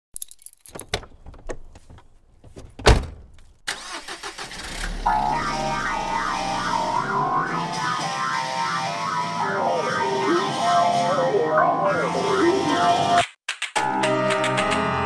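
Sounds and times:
rising whoosh: 0:04.7 - 0:08.1
music: 0:05.1 - 0:15.0.

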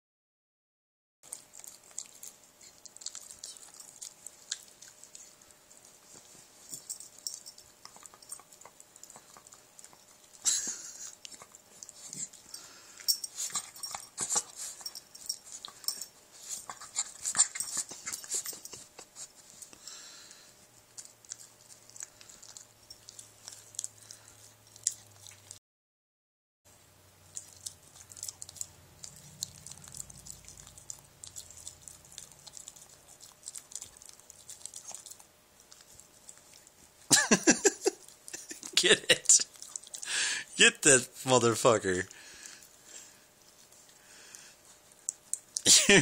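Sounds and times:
dog chewing clicking mouth sounds: 0:01.3 - 0:19.6, 0:20.8 - 0:25.6, 0:27.3 - 0:37.0, 0:39.4 - 0:40.1, 0:44.9 - 0:45.7.

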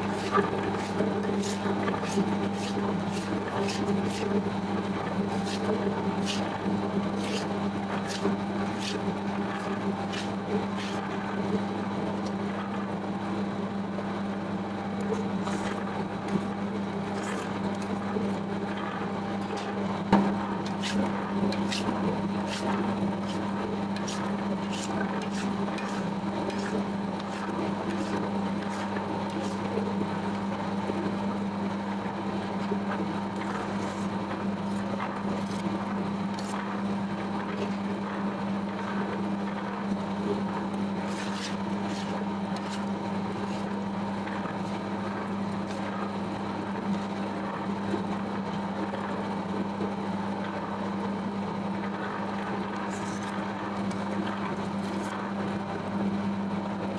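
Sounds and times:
dough mixer motor humming: 0:00.0 - 0:56.9.

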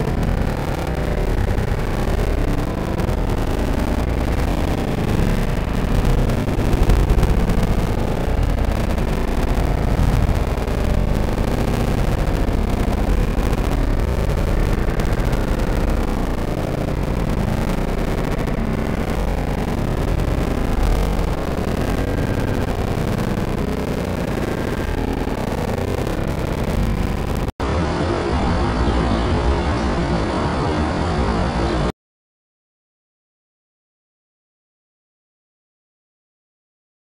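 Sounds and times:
distant city traffic rumble: 0:27.6 - 0:31.9.

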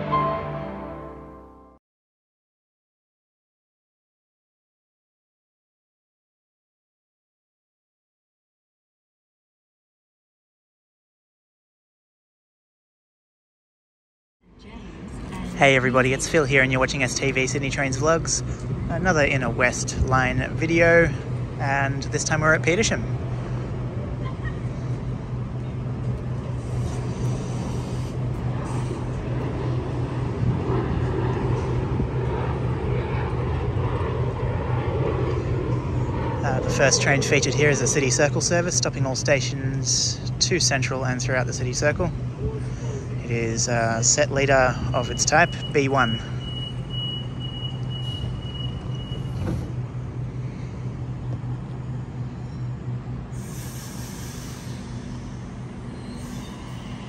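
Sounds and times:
electric train equipment humming: 0:14.4 - 0:57.0
burst of hiss: 0:53.4 - 0:55.4, 0:56.0 - 0:57.0.

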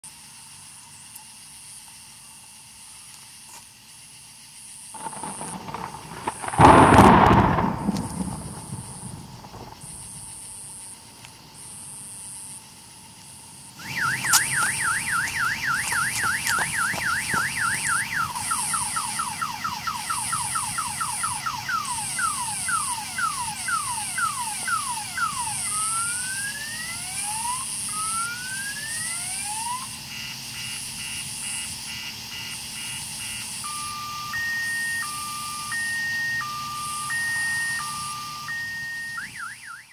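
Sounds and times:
boat alarm siren: 0:13.8 - 0:39.9.

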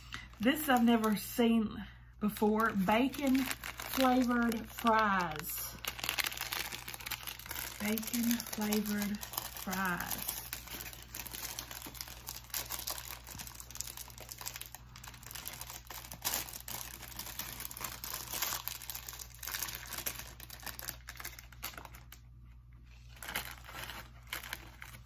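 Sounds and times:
plastic snack packet crinkling: 0:00.2 - 0:01.2, 0:02.3 - 0:25.0.

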